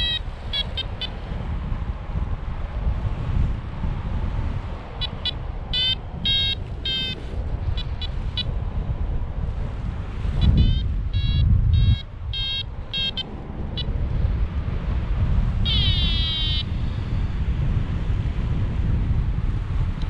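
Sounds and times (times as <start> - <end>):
wind buffeting microphone: 0.0 - 20.0
quick electronic beeps: 5.0 - 7.2, 10.4 - 13.9, 15.7 - 16.7.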